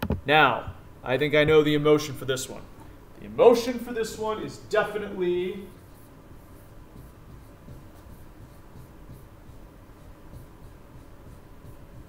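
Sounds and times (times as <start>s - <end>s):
marker squeaking on whiteboard: 4.5s - 12.0s.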